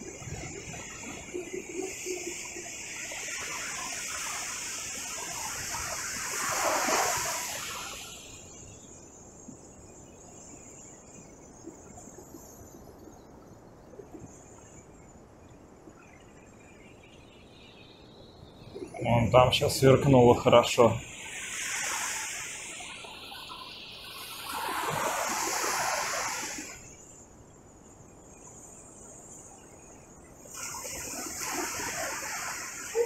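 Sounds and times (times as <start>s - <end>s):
sea waves breaking: 0.0s - 8.4s, 18.7s - 26.9s, 30.5s - 33.0s.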